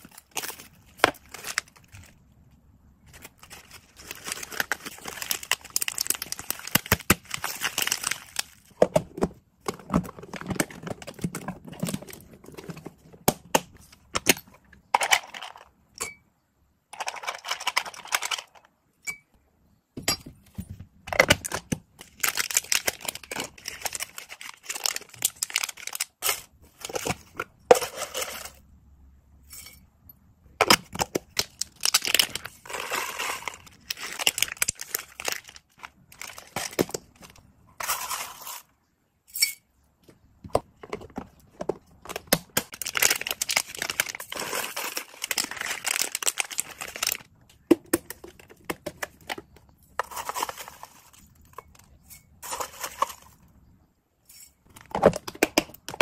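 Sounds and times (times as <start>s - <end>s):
plastic bags crinkling: 0.0s - 2.2s, 3.0s - 8.8s, 21.4s - 27.1s, 31.1s - 38.6s, 42.0s - 47.3s.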